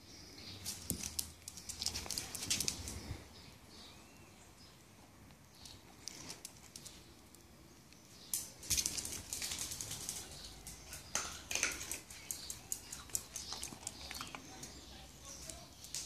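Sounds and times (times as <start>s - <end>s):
dog claws clicking on tiles: 0.6s - 3.1s, 5.6s - 7.4s, 8.0s - 16.0s.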